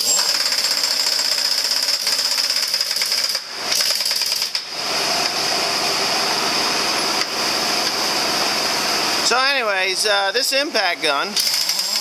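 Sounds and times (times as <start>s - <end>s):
pneumatic impact wrench hammering: 0.0s - 5.4s, 11.4s - 12.0s
steady mechanical running noise: 0.0s - 12.0s.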